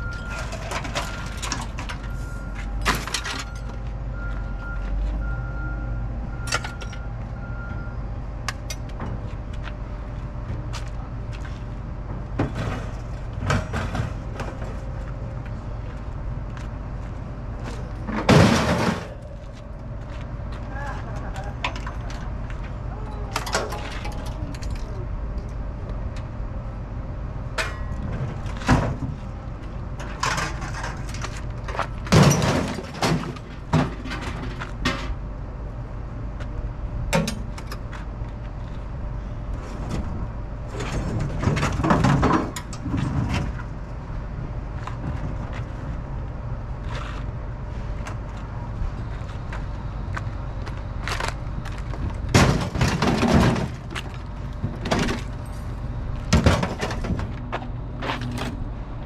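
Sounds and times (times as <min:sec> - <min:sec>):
low machinery drone: 0:00.0 - 0:59.0
scrap metal clattering: 0:17.8 - 0:19.3, 0:30.0 - 0:35.2.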